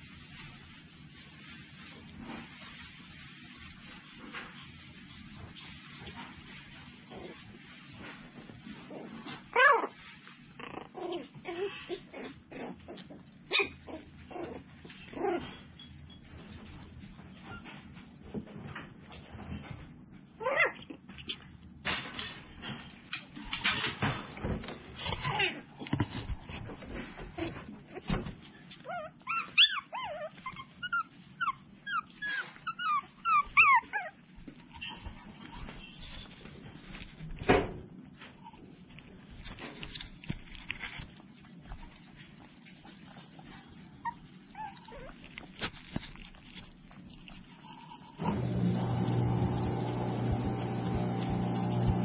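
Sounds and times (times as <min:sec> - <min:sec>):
puppies whimpering: 0:28.8 - 0:34.2, 0:43.9 - 0:45.4
puppies yipping and barking: 0:28.8 - 0:36.1, 0:43.7 - 0:45.8.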